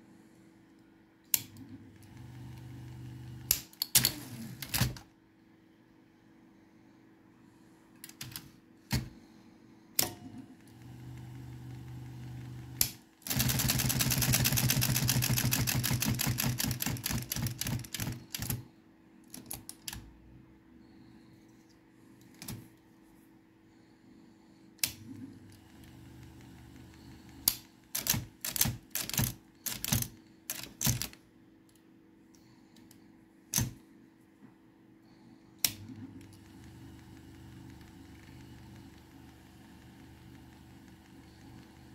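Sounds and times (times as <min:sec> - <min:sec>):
typewriter motor hum: 0:01.3 - 0:05.0, 0:10.0 - 0:18.6, 0:19.3 - 0:20.0, 0:24.8 - 0:31.2, 0:35.1 - 0:41.9
typewriter mechanism clicking: 0:12.8 - 0:18.6, 0:27.4 - 0:31.2.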